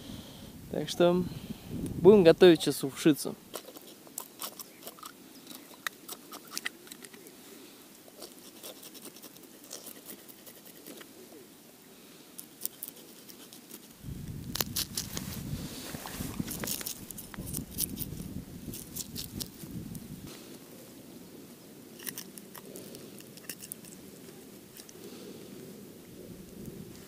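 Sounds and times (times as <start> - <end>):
low steady rushing noise: 0.0 - 3.5
knife scraping fish scales: 3.5 - 7.2, 8.2 - 11.1, 12.4 - 13.9, 16.3 - 19.6, 22.0 - 24.0.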